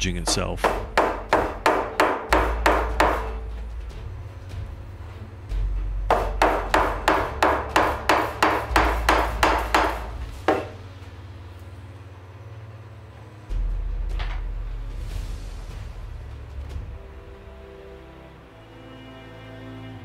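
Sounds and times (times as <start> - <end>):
mallet tapping nails: 0.2 - 3.3, 6.1 - 10.7.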